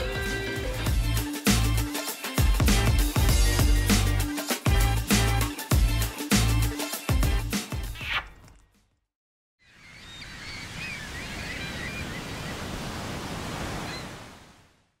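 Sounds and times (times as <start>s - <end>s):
faint bird chirps: 9.6s - 12.6s
ocean surf washing: 10.6s - 14.6s.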